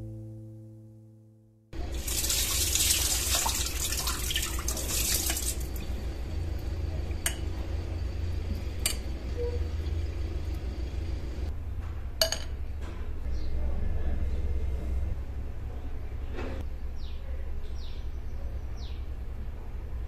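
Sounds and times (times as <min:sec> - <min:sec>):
low steady hum: 0:00.0 - 0:20.0
water pouring through a strainer: 0:01.8 - 0:06.7
water trickling: 0:01.8 - 0:11.5.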